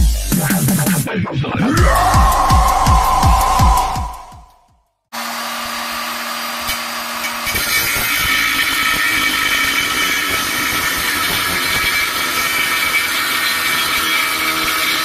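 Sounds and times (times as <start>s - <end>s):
electronic music: 1.7s - 4.6s.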